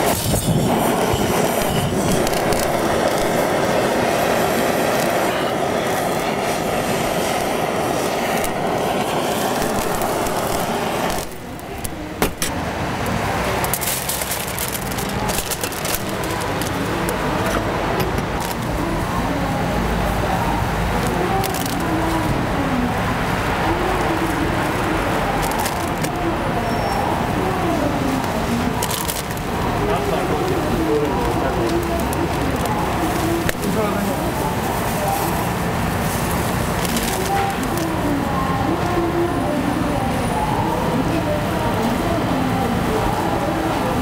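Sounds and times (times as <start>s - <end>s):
blowtorch hissing: 0.0s - 44.0s
foil rustling: 13.6s - 17.5s, 20.9s - 22.5s, 24.3s - 26.3s, 27.8s - 38.2s.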